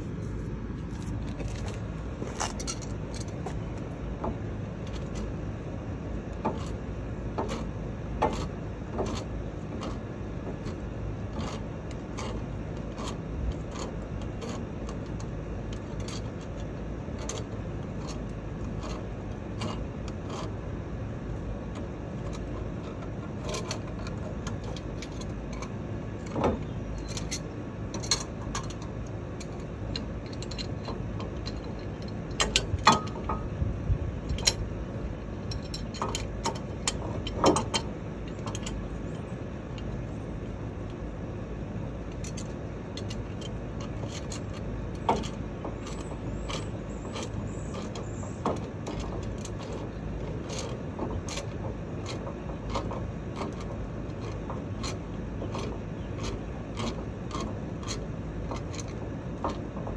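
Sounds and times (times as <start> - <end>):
low background hum: 0.0 - 59.9
wrench clanking on metal: 21.8 - 33.5, 35.4 - 39.1, 42.1 - 59.9.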